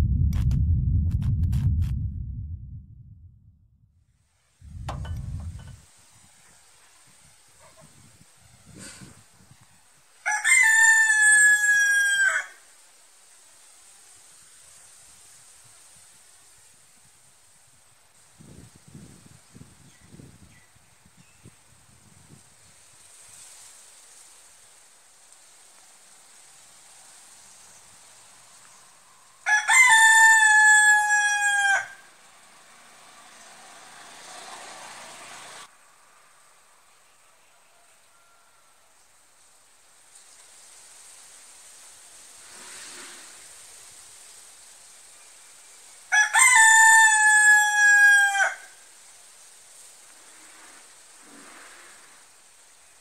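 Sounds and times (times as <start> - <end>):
rooster crowing: 10.2 - 12.6, 29.4 - 32.1, 37.4 - 39.0, 46.1 - 48.8.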